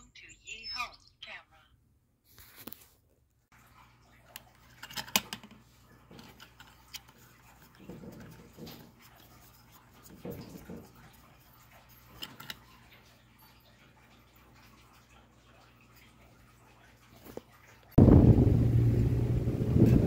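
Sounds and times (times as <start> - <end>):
plastic parts clicking and rubbing: 4.3 - 10.9, 12.1 - 12.7.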